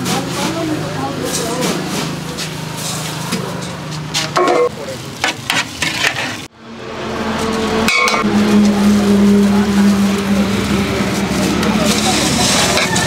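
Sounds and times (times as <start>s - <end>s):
road noise: 0.0s - 13.0s
vehicle engine droning: 6.4s - 13.0s.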